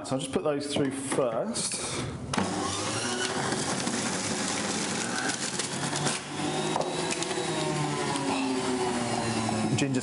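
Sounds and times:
juicer motor whirring and grinding: 2.3s - 10.0s.

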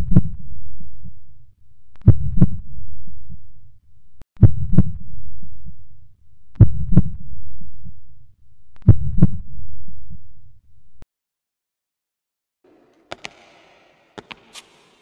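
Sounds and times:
heartbeat thumps: 6.6s - 7.2s.

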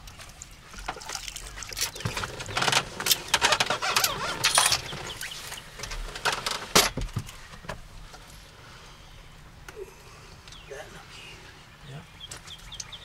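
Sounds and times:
jingling metallic rattle: 3.1s - 5.2s.

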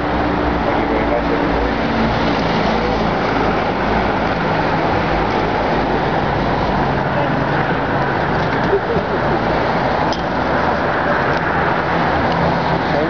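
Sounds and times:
city street traffic: 0.0s - 13.0s.

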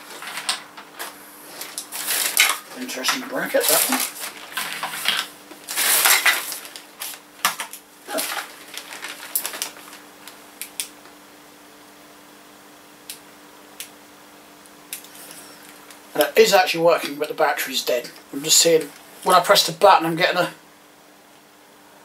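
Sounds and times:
plastic parts clattering together: 0.0s - 10.0s
faint steady hum: 0.0s - 22.0s.

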